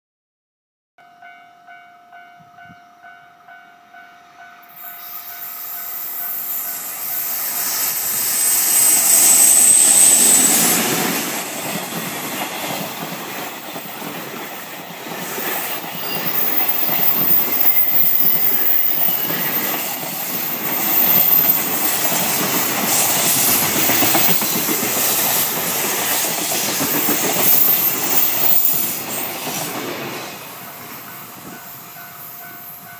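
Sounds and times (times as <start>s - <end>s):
freight train passing: 1.2s - 32.9s
high hiss: 4.7s - 13.0s, 15.2s - 32.9s.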